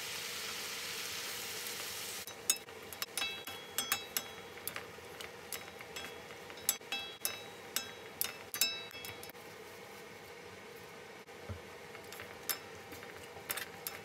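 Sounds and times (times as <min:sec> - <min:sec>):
wooden spatulas clinking on wok: 0:02.3 - 0:09.4, 0:12.0 - 0:14.0.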